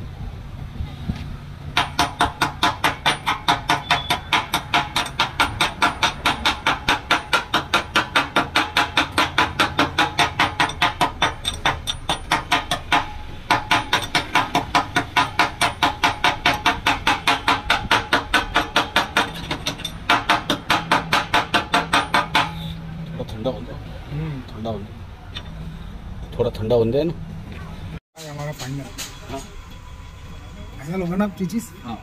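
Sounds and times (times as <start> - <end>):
chipping hammer tapping metal: 1.8 - 22.6.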